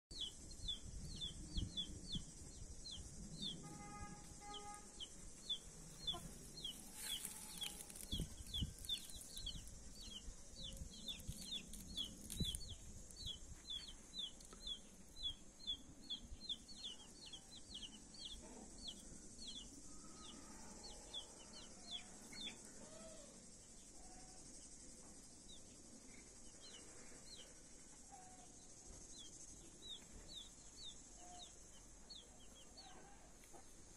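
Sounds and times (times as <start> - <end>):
steady high hiss: 0.2 - 18.2
chicks peeping: 5.4 - 19.6.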